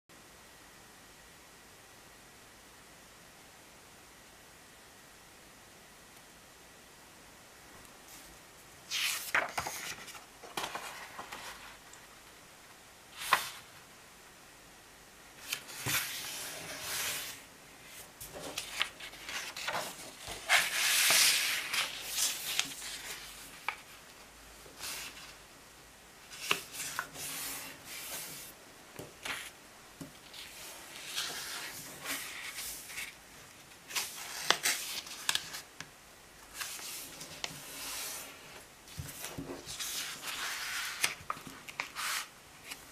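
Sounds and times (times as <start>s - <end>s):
paper fold clicks: 8.9s - 11.6s, 33.9s - 35.6s
paper rustling and sliding: 8.9s - 11.9s, 13.1s - 13.8s, 15.4s - 25.4s, 26.3s - 35.7s, 36.5s - 42.9s.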